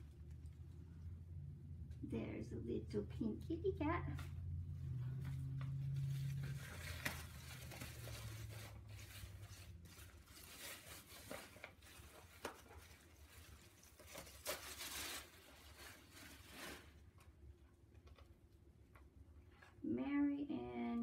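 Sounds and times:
wrapping rustling and crinkling: 0.0s - 1.3s, 3.9s - 17.5s
low hum: 0.0s - 10.1s.

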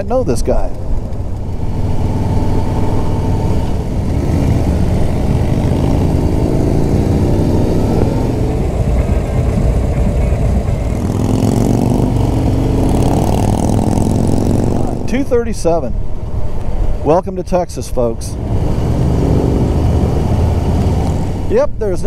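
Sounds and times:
motorcycle engine running: 0.0s - 17.1s, 18.4s - 21.5s.

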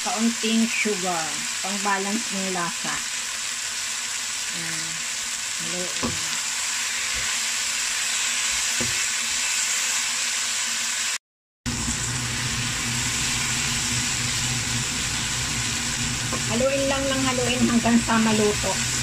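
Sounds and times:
vegetables sizzling in a wok: 0.0s - 19.0s
low steady hum: 11.7s - 19.0s.

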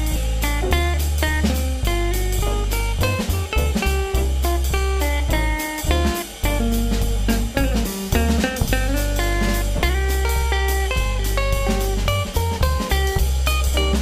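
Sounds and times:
guitar music with bass and drums: 0.0s - 14.0s.

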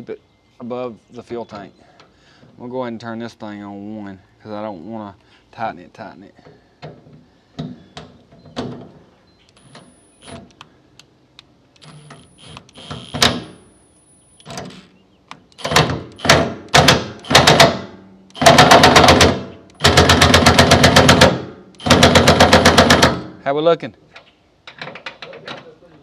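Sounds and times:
impact wrench hammering: 12.8s - 13.6s, 15.6s - 23.3s.

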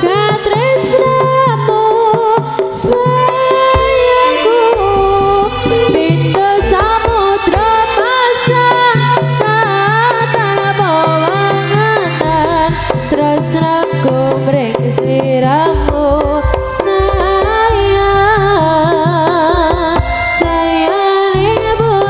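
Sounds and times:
hand drums beating quickly: 0.0s - 22.0s
wavering melody: 3.0s - 9.9s.

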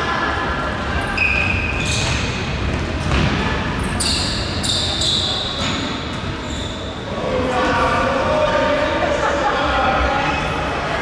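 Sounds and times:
players' voices in echoing hall: 0.0s - 11.0s
shoes squeaking on court floor: 1.0s - 7.1s.

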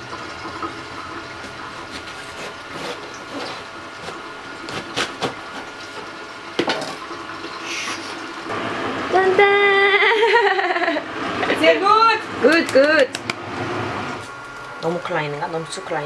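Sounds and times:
knife cutting cabbage: 1.9s - 5.5s.

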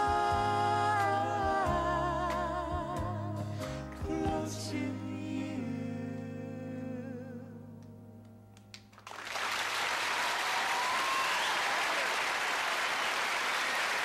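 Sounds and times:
audience applause: 8.9s - 14.0s.

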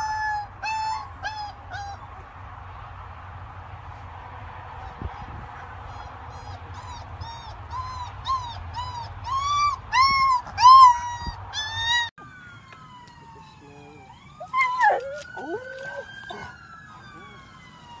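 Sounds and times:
puppy whimpering in high yips: 0.0s - 2.0s, 4.8s - 12.1s, 14.5s - 16.5s.

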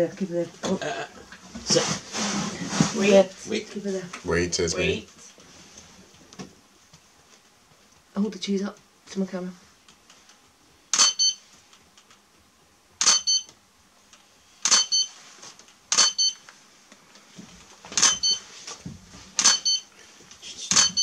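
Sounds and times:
camera shutter double click: 10.9s - 11.2s, 13.0s - 13.3s, 14.6s - 14.9s, 15.9s - 16.2s, 19.4s - 19.6s
short high electronic beep: 20.7s - 21.0s.

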